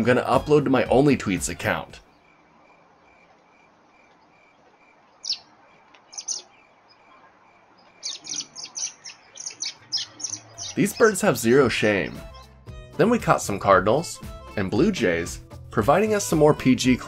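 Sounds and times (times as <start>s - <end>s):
small birds calling: 1.9s - 12.7s.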